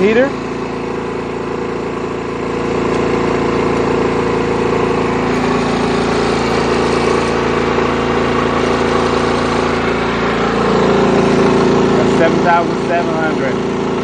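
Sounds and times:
generator engine running under load: 0:00.0 - 0:14.0.

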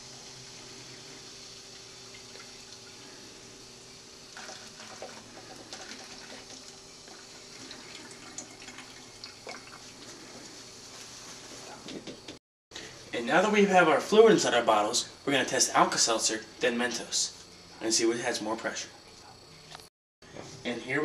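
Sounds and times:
fizzy liquid pouring: 0:00.0 - 0:10.8
small fizz crackles: 0:00.0 - 0:11.8.

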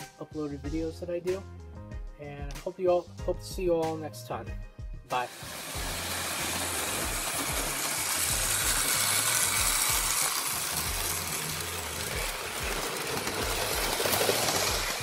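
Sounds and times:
toy train motor whir and rattle: 0:05.1 - 0:15.0.

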